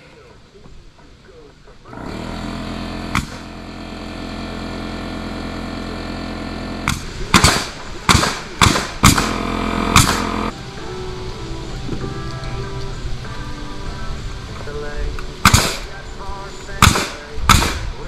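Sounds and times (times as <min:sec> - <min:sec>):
steady hum: 0:00.0 - 0:18.0
nails banged into wood: 0:03.1 - 0:03.5, 0:06.8 - 0:10.4, 0:15.5 - 0:15.8, 0:16.8 - 0:17.9.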